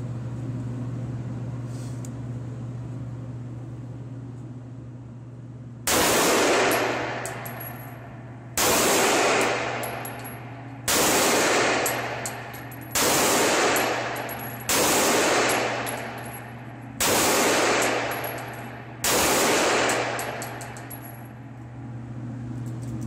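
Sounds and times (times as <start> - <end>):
pistol shots echoing: 5.9 - 7.8, 8.6 - 21.2.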